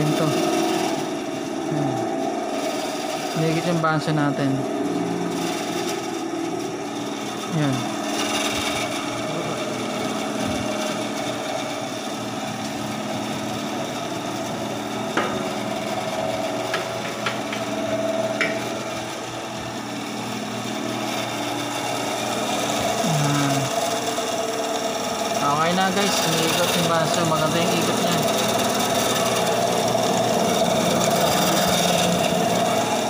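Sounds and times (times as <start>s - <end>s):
band saw motor humming: 0.0s - 33.0s
saw blade and wheels whirring: 0.0s - 33.0s.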